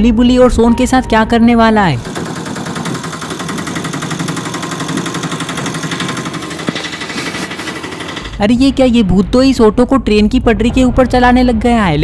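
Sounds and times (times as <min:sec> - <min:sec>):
auto-rickshaw engine chugging: 0:02.0 - 0:08.8.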